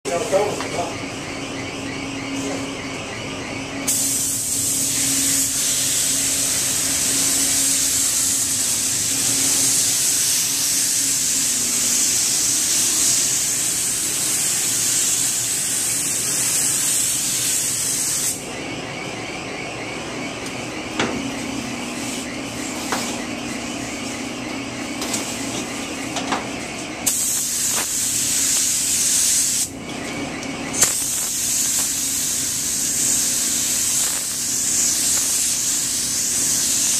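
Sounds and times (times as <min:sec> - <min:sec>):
steady low hum: 0:00.1 - 0:36.9
paint spray gun hissing: 0:03.9 - 0:18.4, 0:27.0 - 0:29.7, 0:30.8 - 0:36.9.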